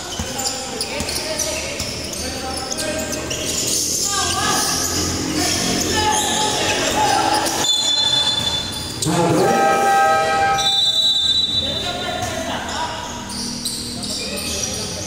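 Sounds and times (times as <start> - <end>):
voices in a gym: 0.0 - 15.0
long horn tones: 9.0 - 10.8.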